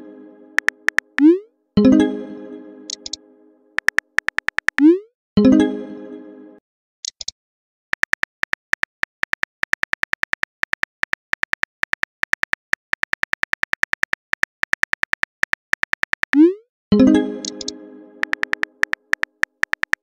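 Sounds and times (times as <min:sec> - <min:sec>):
keyboard tap clicks: 0:00.6 - 0:01.3, 0:02.9 - 0:03.2, 0:03.8 - 0:04.8, 0:17.4 - 0:20.0.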